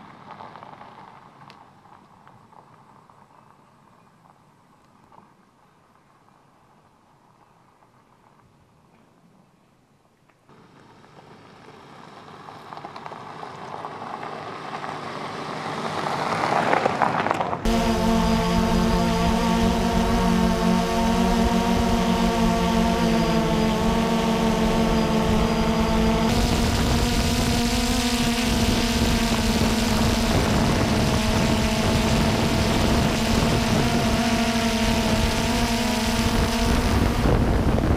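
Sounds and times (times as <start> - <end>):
drone propellers whining: 17.7 - 37.9.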